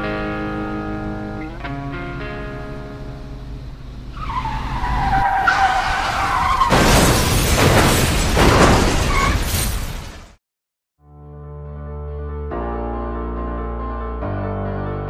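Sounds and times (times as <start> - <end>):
tyres squealing: 4.1 - 6.8
car crash impacts: 4.2 - 10.4.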